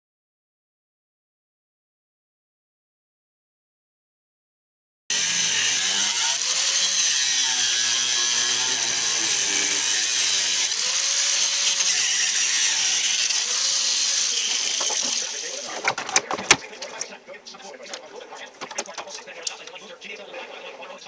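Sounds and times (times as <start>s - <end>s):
angle grinder cutting sheet metal: 5.1s - 16.0s.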